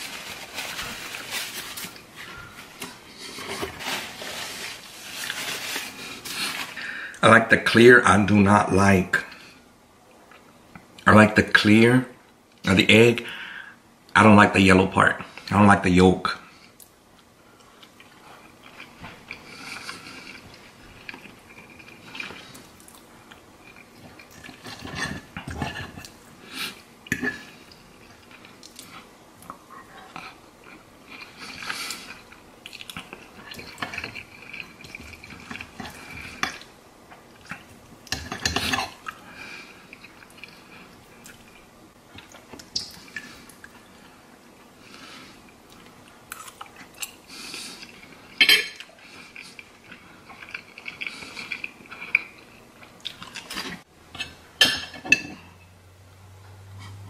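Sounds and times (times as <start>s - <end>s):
chewing: 17.6s - 44.1s, 45.5s - 53.8s.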